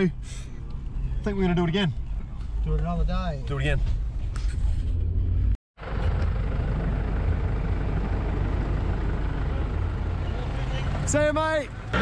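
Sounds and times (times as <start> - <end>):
vehicle engine idling: 5.8 - 12.0.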